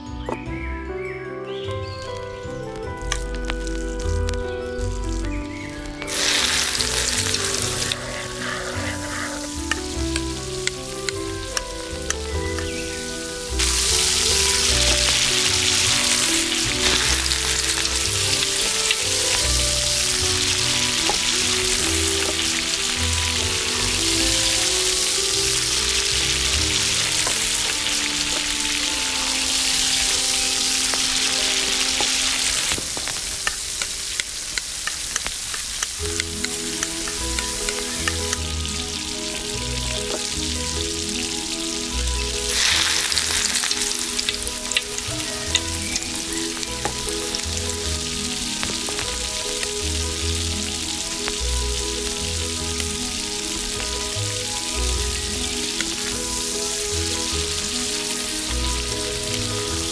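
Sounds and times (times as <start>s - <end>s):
onions sizzling in hot oil: 3.0s - 59.9s
stirring clicks: 32.9s - 38.5s.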